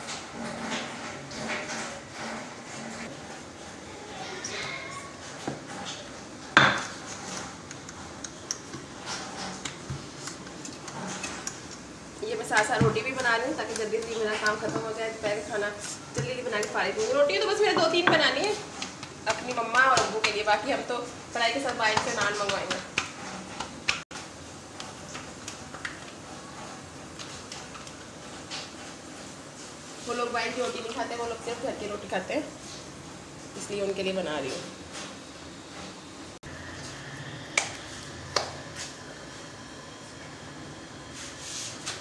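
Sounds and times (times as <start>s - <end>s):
utensils and dishes clattering: 0.0s - 20.5s.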